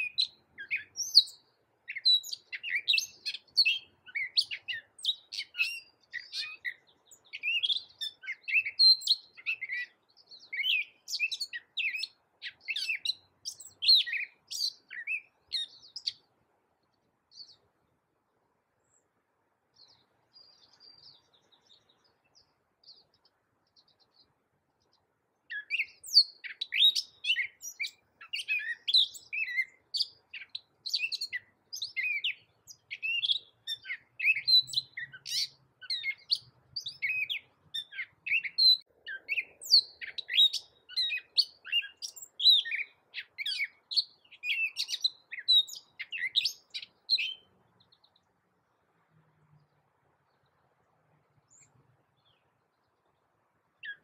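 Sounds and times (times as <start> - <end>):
catbird singing: 0.0 - 16.3, 25.5 - 48.4, 53.8 - 54.0.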